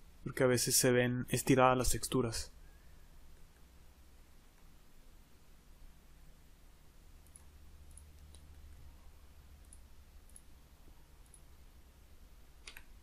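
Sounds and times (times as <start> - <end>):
mouse and keyboard clicks: 7.2 - 8.7, 9.6 - 10.5, 12.6 - 13.0.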